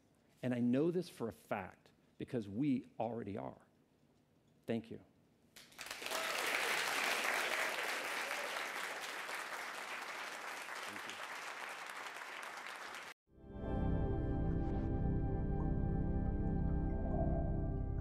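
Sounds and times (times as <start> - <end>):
audience applauding: 5.6 - 13.2
music with sustained notes: 13.3 - 18.0.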